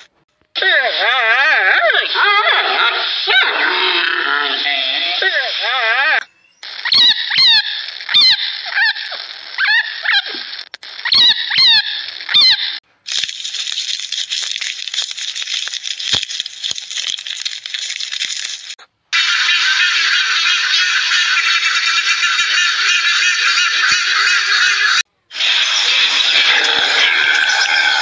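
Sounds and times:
squeaky animal calls: 1.1 - 12.8, 19.2 - 28.0.

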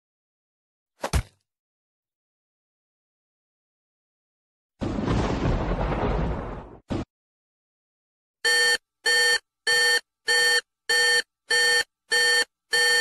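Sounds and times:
electronic alarm beeping: 8.4 - 13.0.

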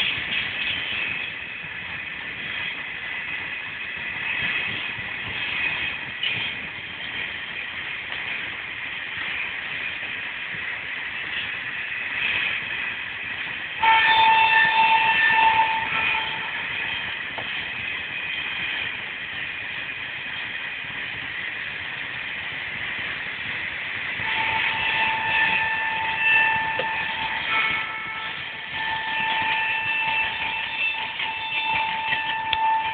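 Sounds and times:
train coaches rushing past: 0.0 - 32.9
shrill wheel squealing: 24.2 - 32.9.

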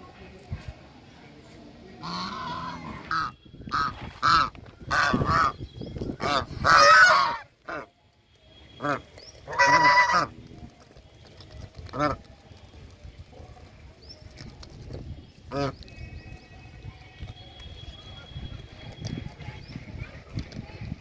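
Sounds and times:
geese honking: 2.0 - 5.6, 6.2 - 7.9, 8.7 - 10.4.

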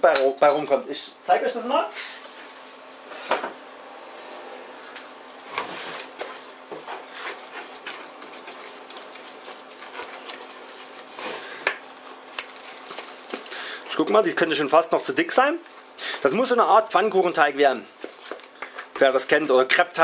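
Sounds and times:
wooden spoon scraping dough in bowl: 5.5 - 12.1.

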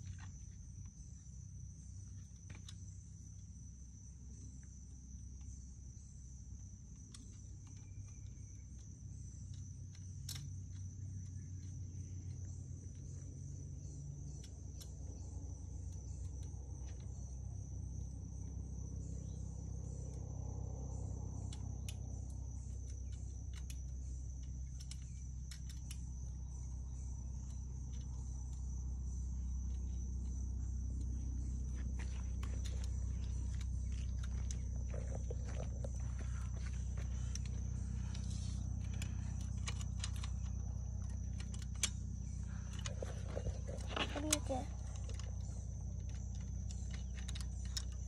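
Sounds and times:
insects trilling: 0.0 - 48.0
faint clicks of bike parts: 6.9 - 18.6, 21.0 - 28.8, 29.4 - 48.0
low rumble: 16.3 - 48.0.

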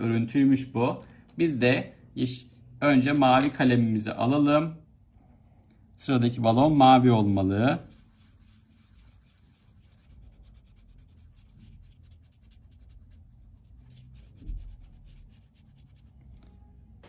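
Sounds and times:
marker scratching on paper: 6.5 - 16.6.

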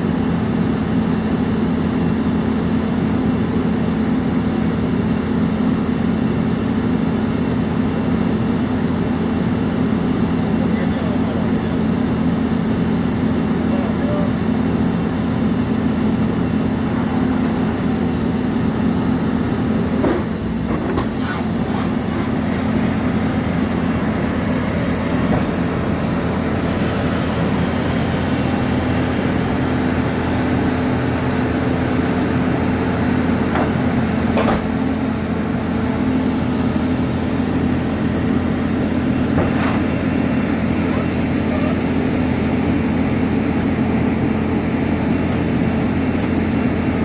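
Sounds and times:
aircraft and machinery drone: 0.0 - 47.0
high-pitched whine: 0.0 - 47.0.

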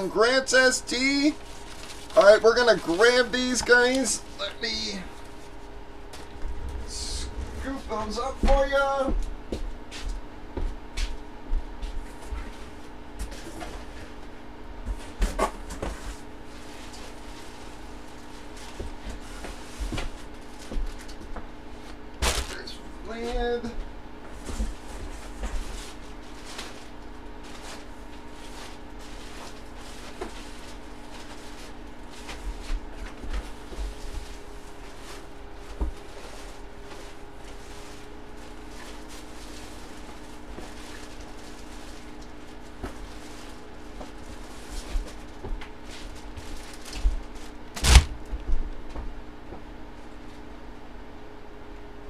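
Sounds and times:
steady low hum: 0.0 - 52.0
plastic bags crinkling: 1.2 - 4.1, 36.4 - 45.4.

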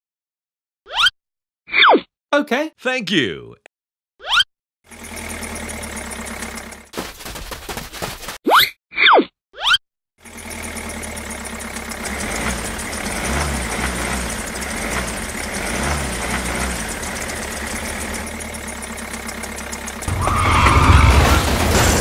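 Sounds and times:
tractor engine idling: 4.9 - 8.2, 10.2 - 22.0
sliding whistle-like tones: 20.1 - 21.4.

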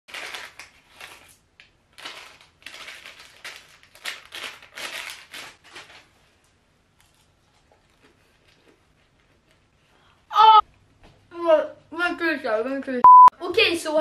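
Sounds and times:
plastic wrapper crinkling: 0.1 - 6.2.

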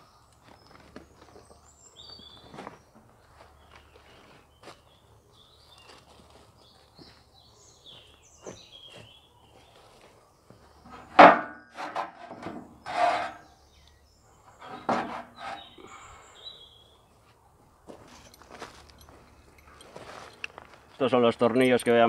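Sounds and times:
wooden battens knocking: 10.9 - 13.4, 14.6 - 15.6
wood scraping on metal frame: 10.9 - 13.7, 14.4 - 16.0.

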